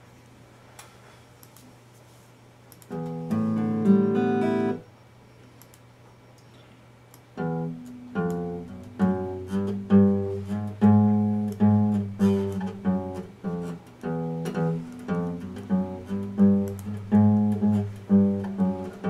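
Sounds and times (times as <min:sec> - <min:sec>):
acoustic guitar chords picked: 0:02.9 - 0:04.8, 0:07.4 - 0:19.0.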